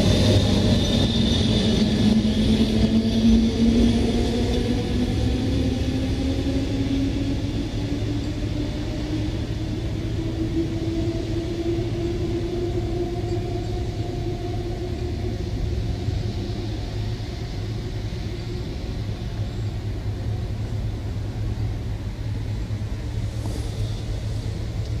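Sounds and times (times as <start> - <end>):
low outdoor rumble: 0.0 - 25.0
humming tone: 6.7 - 25.0.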